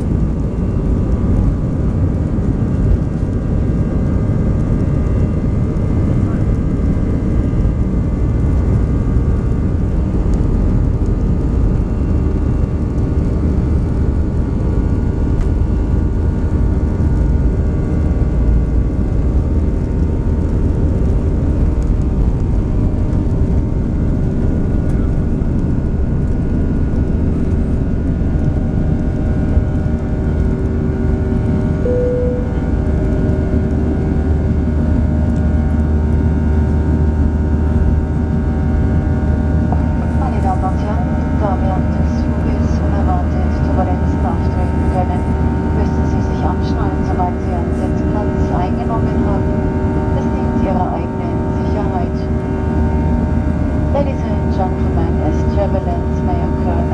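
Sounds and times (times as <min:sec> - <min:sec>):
heavy engine rumble: 0:00.0 - 0:56.9
jet engines whining: 0:38.7 - 0:56.9.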